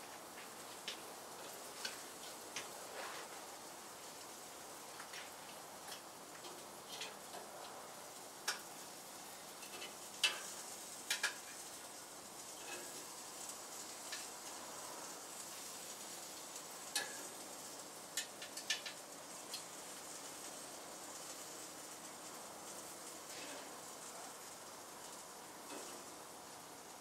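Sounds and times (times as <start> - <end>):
food sizzling on a grill: 0.0 - 27.0
metal tongs clicking on grill: 0.8 - 2.7, 5.9 - 7.5, 8.4 - 8.8, 9.6 - 11.7, 14.0 - 14.6, 16.5 - 17.4, 18.1 - 19.7, 25.7 - 26.1.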